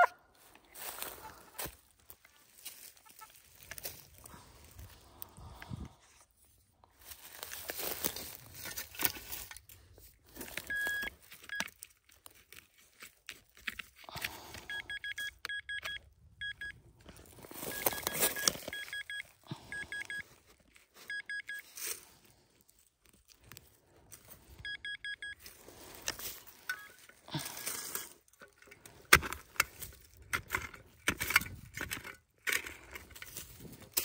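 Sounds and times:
rustling and scraping: 0:00.4 - 0:14.1, 0:25.4 - 0:34.0
metal detector beeps: 0:10.6 - 0:11.7, 0:14.4 - 0:16.8, 0:17.6 - 0:20.3, 0:21.0 - 0:21.7, 0:24.6 - 0:25.4, 0:26.6 - 0:28.1.

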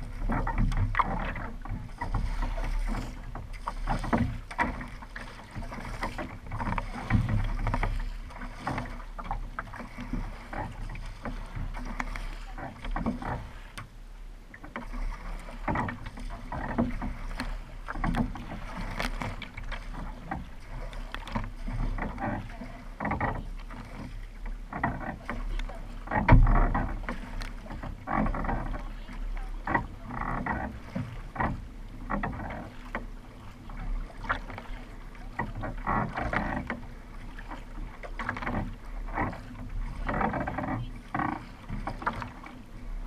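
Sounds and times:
paddle blades splashing: 0:00.0 - 0:43.0
water rushing along hull: 0:00.0 - 0:43.0.

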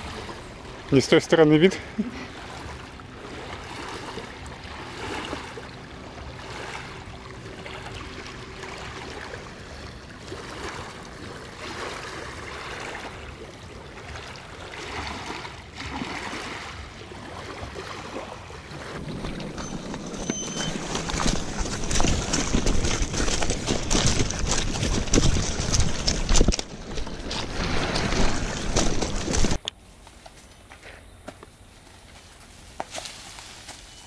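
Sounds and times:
waves lapping on pebble shore: 0:00.0 - 0:29.6.

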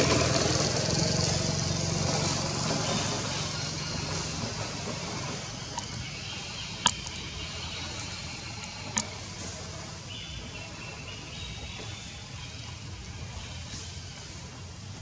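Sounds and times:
outdoor background rumble: 0:00.0 - 0:15.0
sharp clicks: 0:06.8 - 0:07.3.

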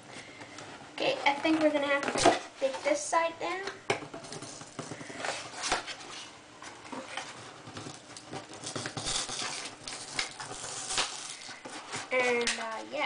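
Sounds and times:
cardboard rustling and scraping: 0:00.8 - 0:03.0, 0:04.3 - 0:12.4.

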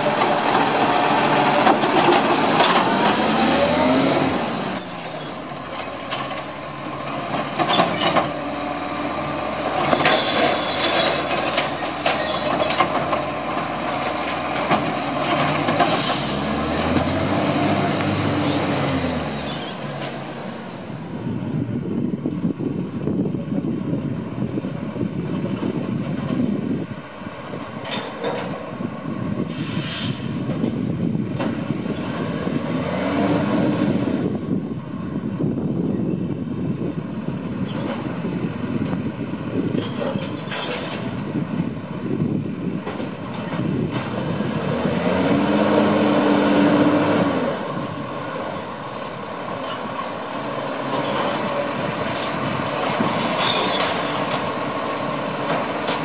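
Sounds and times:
air brake hiss: 0:15.8 - 0:16.5, 0:29.5 - 0:30.5.

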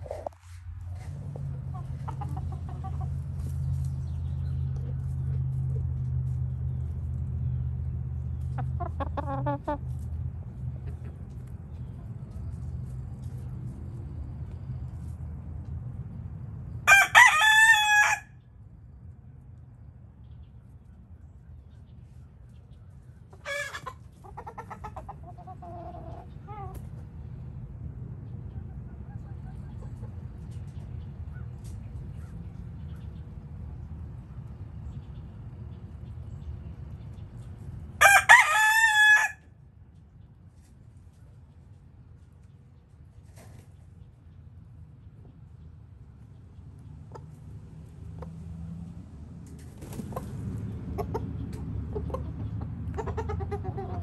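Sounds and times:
chickens clucking: 0:00.0 - 0:15.8, 0:21.8 - 0:38.0, 0:40.6 - 0:44.4, 0:46.2 - 0:48.6, 0:49.4 - 0:54.0.

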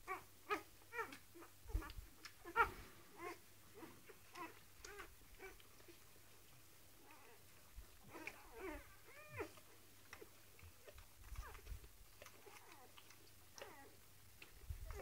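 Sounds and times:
puppies squeaking and whimpering: 0:08.1 - 0:09.6.

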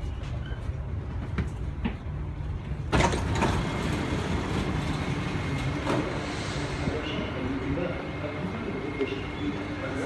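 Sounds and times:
train low rumble: 0:00.0 - 0:10.0
train doors clunk: 0:02.7 - 0:06.3.

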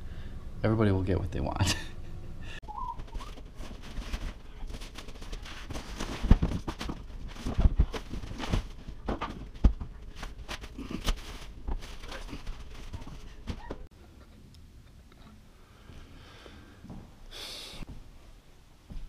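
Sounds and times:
knocks and thumps of boxes: 0:03.0 - 0:13.9
packaging handling: 0:03.0 - 0:13.9.

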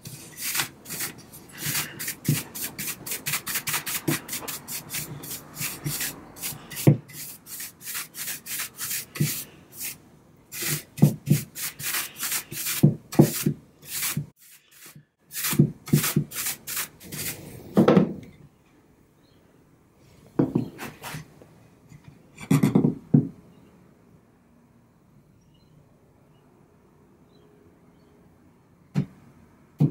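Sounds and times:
paintbrush scrubbing on wood: 0:00.0 - 0:17.6.

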